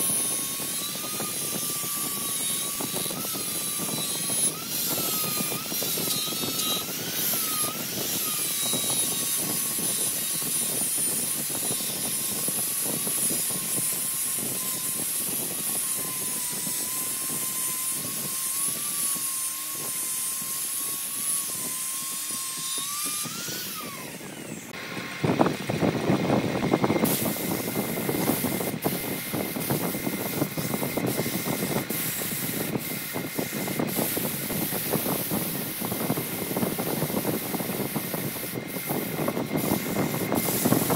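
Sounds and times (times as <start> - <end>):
sanding hiss: 0.0 - 24.8, 26.6 - 40.9
angle grinder whine: 0.0 - 40.9
hand rubbing turning wood: 0.1 - 11.1.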